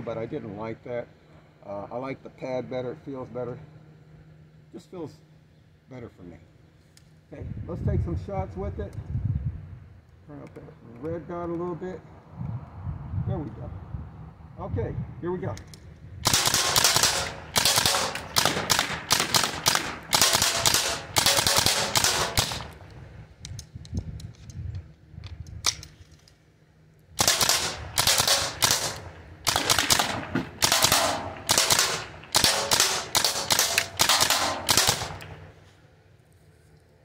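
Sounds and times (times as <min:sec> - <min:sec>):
launcher firing sharp pops: 0:16.3 - 0:22.9, 0:27.2 - 0:35.5.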